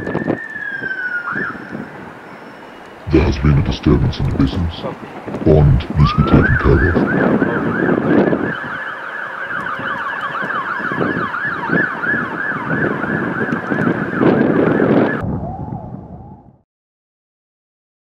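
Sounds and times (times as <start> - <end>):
emergency siren yelping: 0.0 - 2.3, 7.0 - 15.9.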